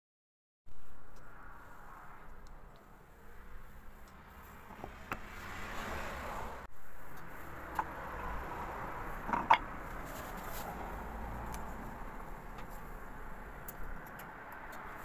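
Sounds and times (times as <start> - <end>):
wood rubbing and scraping: 3.6 - 6.1, 7.0 - 13.1.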